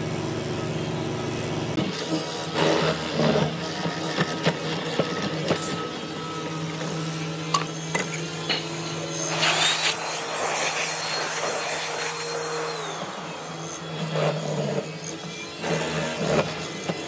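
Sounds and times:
power tool motor running: 0.0 - 17.0
high whine: 5.0 - 17.0.

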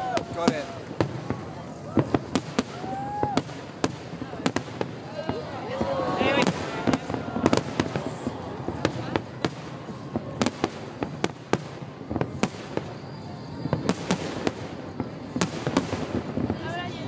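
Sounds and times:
fireworks bursting: 0.0 - 17.0.

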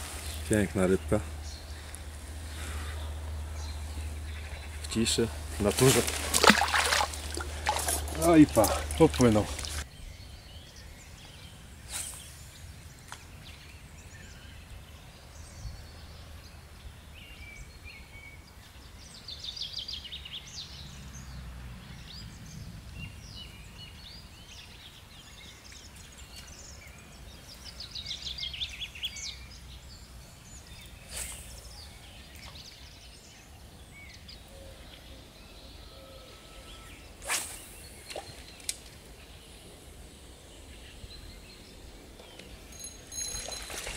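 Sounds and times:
small birds singing and trilling: 0.0 - 43.9
steady low rumble: 0.4 - 6.3.

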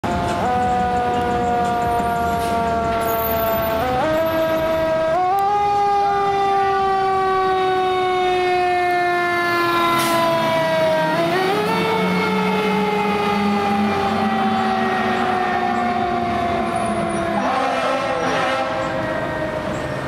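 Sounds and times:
fire engine siren winding: 0.1 - 19.9.

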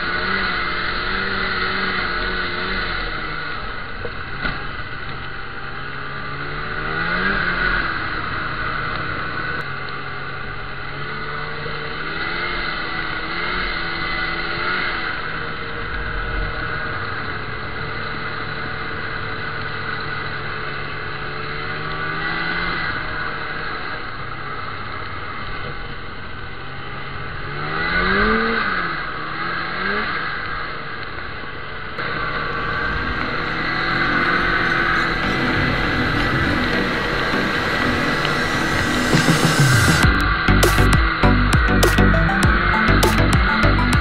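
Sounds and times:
snowmobile engine revving: 0.0 - 4.4, 5.4 - 17.2, 26.9 - 30.4, 32.0 - 44.0.

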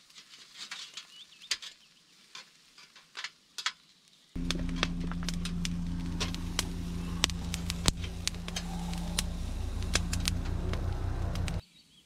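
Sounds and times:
fire popping and crackling: 4.4 - 11.6
steady low hum: 4.4 - 11.6.

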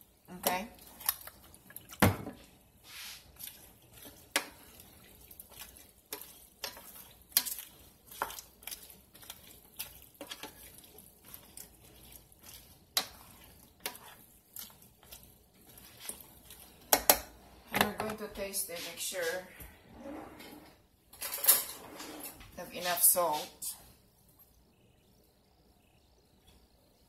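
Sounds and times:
spoon scraping a metal pan: 2.9 - 17.2.

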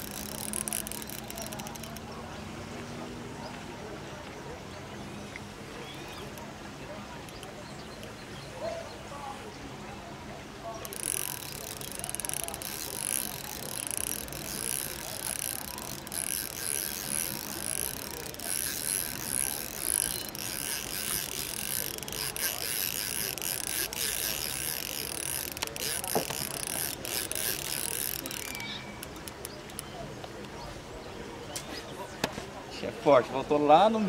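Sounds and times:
fishing reel ratchet clicking: 0.0 - 2.2, 7.2 - 8.1, 10.8 - 29.9.

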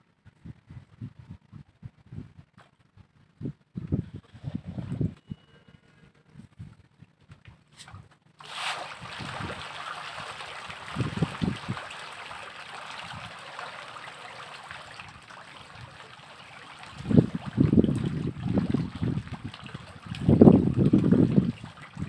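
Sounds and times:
fish splashing: 8.4 - 22.0.

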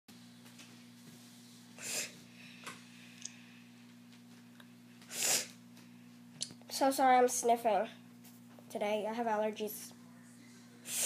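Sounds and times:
steady low hum: 0.1 - 11.0
person sniffing: 1.8 - 2.2, 5.1 - 5.6.

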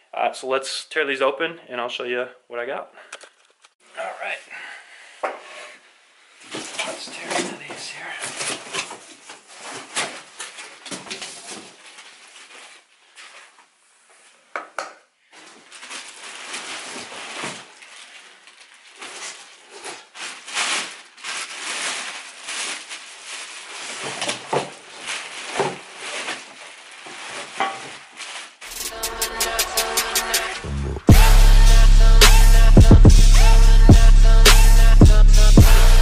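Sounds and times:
plastic wrapping crinkling: 6.4 - 14.4, 15.2 - 30.5.

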